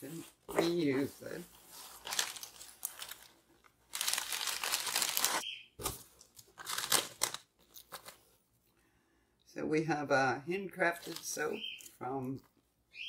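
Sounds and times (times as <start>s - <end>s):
paper fill and plastic bag crackling: 0.6s - 8.1s.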